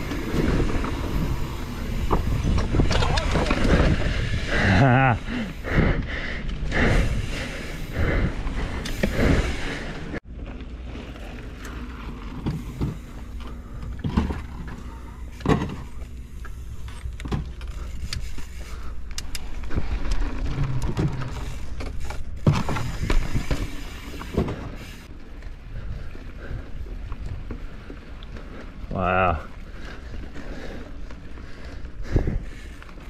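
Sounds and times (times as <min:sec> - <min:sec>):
bike knocks and rattles: 0:00.0 - 0:05.2, 0:08.3 - 0:25.1
mountain bike rumbling on trail: 0:00.0 - 0:33.0.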